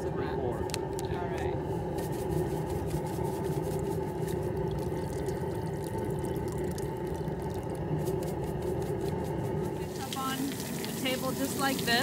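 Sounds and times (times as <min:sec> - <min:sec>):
hose water splashing into metal pot: 0:04.4 - 0:12.0.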